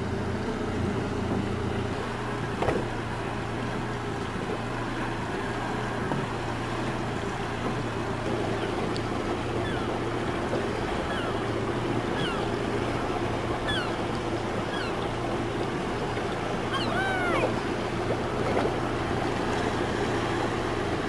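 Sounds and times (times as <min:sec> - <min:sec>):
boat engine running: 0:00.0 - 0:21.0
waves: 0:00.0 - 0:21.0
wind: 0:00.0 - 0:21.0
birds calling: 0:08.3 - 0:18.6.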